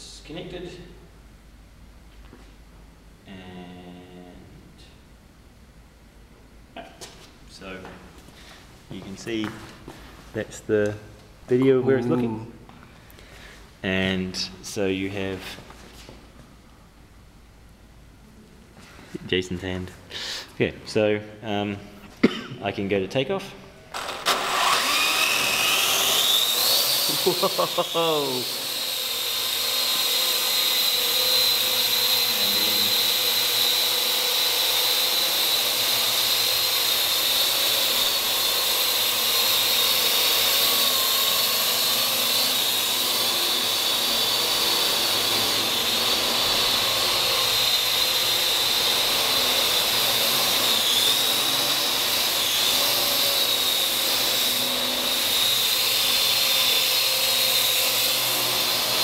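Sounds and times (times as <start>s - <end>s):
drone propellers whining: 23.9s - 59.0s.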